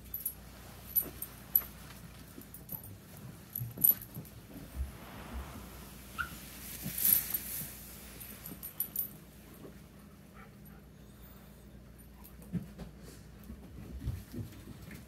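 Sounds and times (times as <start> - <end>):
rustling noise: 4.0 - 8.9.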